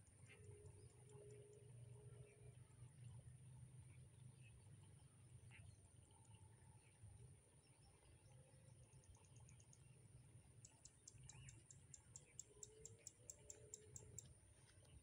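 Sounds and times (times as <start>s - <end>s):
outdoor field ambience: 0.0s - 15.0s.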